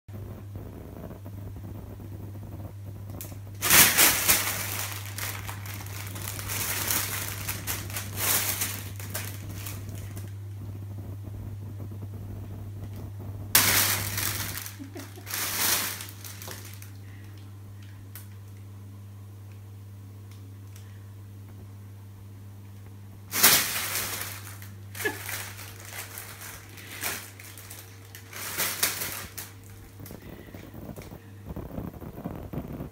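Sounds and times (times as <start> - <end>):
steady low hum: 0.1 - 32.9
plastic bag crinkling: 3.1 - 10.8, 12.4 - 18.4, 23.3 - 32.9.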